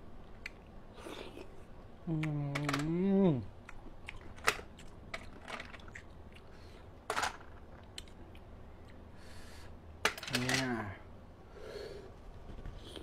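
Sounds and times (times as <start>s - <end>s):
shells clicking and cracking: 2.5s - 3.0s, 3.6s - 6.1s, 10.0s - 10.8s.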